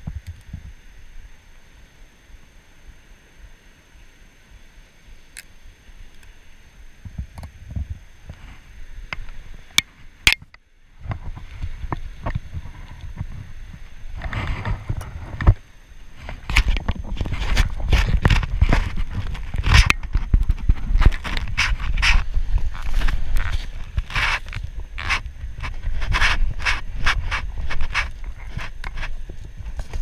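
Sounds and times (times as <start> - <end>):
wind buffeting microphone: 16.2 - 30.0.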